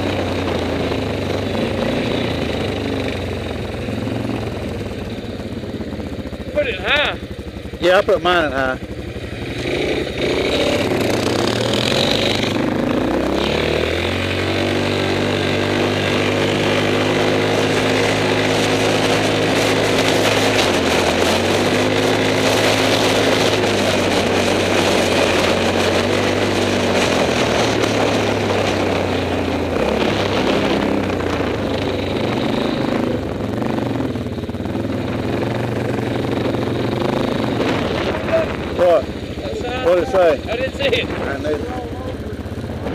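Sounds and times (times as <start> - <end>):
quad engine revving: 0.0 - 42.9
tyre and wind noise: 9.6 - 42.9.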